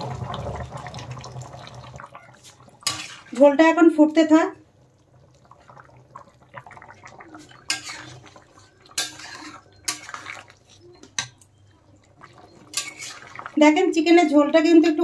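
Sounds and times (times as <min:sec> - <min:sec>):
gravy simmering: 0:00.0 - 0:15.0
metal spatula scraping metal pan: 0:02.4 - 0:03.6, 0:07.4 - 0:11.3, 0:12.5 - 0:13.4.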